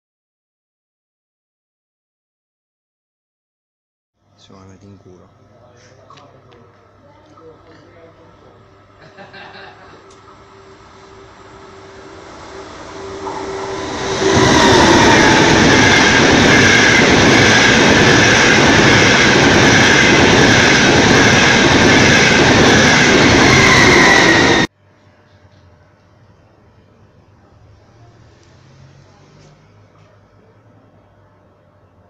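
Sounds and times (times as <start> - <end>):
high-speed train passing: 8.8 - 24.7, 27.4 - 31.3.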